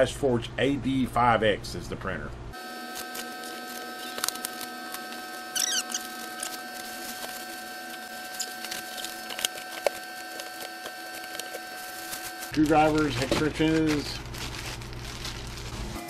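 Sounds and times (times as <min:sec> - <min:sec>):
steady hum: 0:00.0 - 0:16.0
cardboard squeak: 0:03.4 - 0:12.4.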